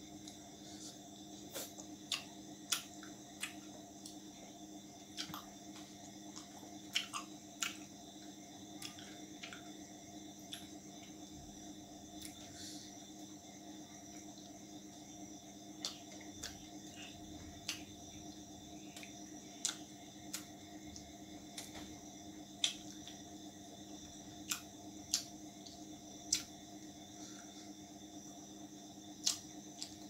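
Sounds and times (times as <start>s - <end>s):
wet chewing clicks: 1.6s - 4.2s, 5.0s - 7.9s, 18.9s - 21.8s, 24.4s - 26.6s, 29.2s - 30.0s.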